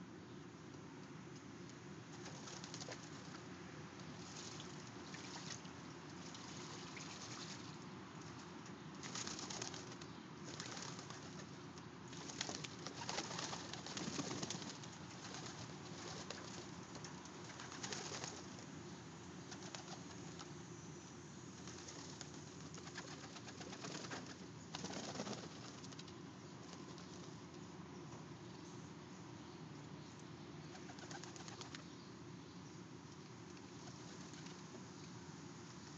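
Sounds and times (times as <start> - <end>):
wings flapping: 2.1 - 3.3, 9.0 - 11.5, 12.1 - 18.6, 19.5 - 20.5, 21.6 - 26.1, 30.7 - 31.8, 33.8 - 34.6.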